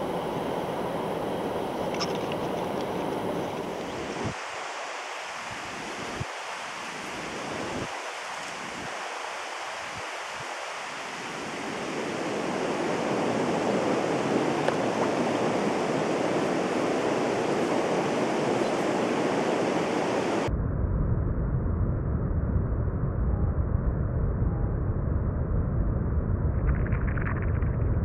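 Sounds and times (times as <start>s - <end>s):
river water rushing: 0.0s - 20.5s
muffled low rumble: 20.5s - 28.0s.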